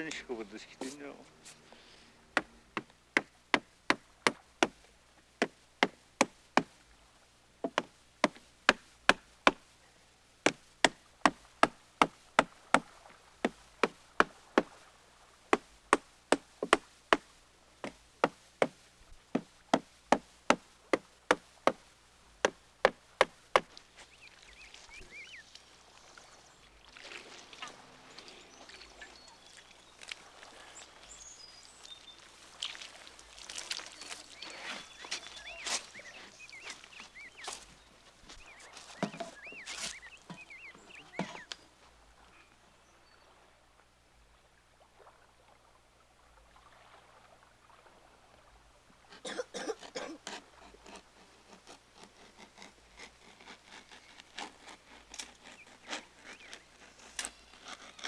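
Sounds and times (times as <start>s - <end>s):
wooden mallet knocking wood: 7.6s - 9.6s, 39.0s - 39.4s.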